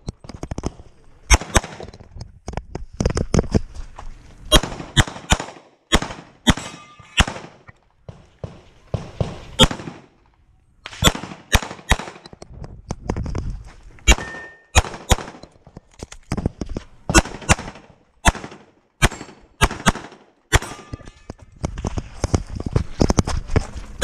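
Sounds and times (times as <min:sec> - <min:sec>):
rapid pistol fire: 0:04.5 - 0:07.6, 0:08.4 - 0:10.1, 0:11.0 - 0:12.2, 0:14.1 - 0:15.4, 0:17.1 - 0:20.7.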